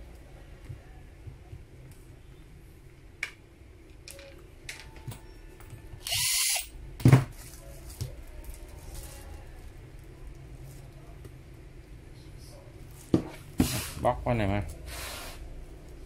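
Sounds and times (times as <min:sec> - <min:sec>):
cordless screwdriver running: 0:06.0 - 0:06.7.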